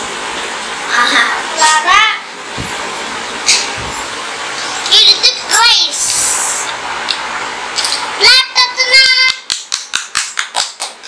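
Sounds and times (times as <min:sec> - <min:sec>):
hand clapping: 0:09.0 - 0:11.0.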